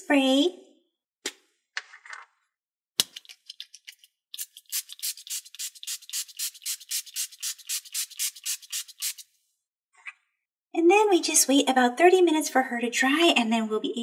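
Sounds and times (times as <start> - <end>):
spray bottle squirting: 3.0 - 9.3.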